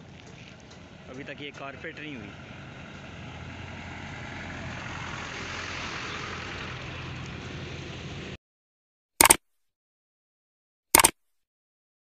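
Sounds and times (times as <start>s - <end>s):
minibus engine hum: 0.0s - 8.4s.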